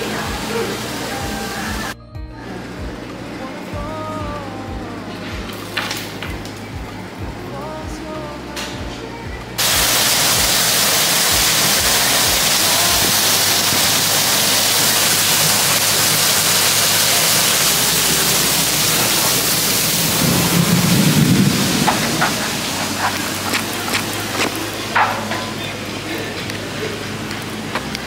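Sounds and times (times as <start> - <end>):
heavy rain on glass canopy: 0.0 - 2.0, 9.6 - 28.0
low rumble: 17.6 - 25.0.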